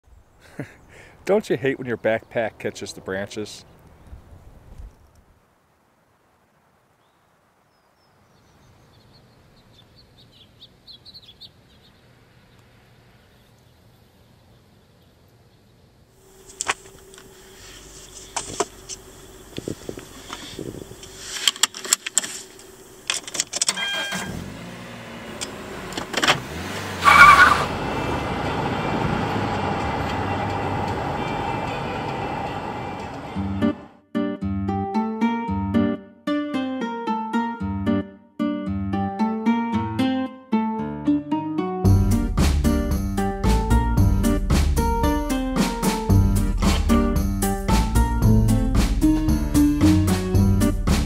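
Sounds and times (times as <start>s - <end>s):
car road and engine noise: 10.3s - 34.0s, 42.0s - 51.0s
knocks and clicks of handling: 21.4s - 23.8s
short loud tone: 23.7s - 24.4s.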